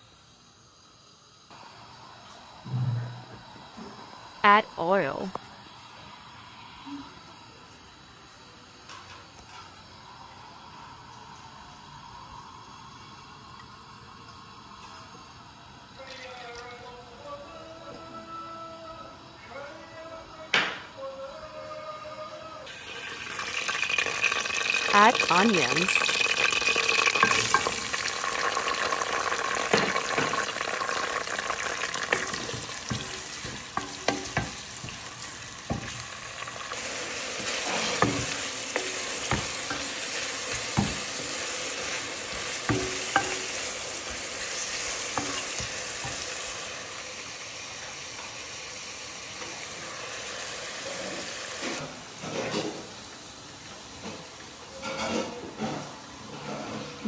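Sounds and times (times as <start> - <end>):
onions sizzling in hot oil: 0.0 - 2.7, 3.4 - 16.4, 22.7 - 57.0
wooden spoon knocking metal pot: 32.1 - 35.1, 35.7 - 36.0, 38.0 - 41.3, 42.3 - 43.6.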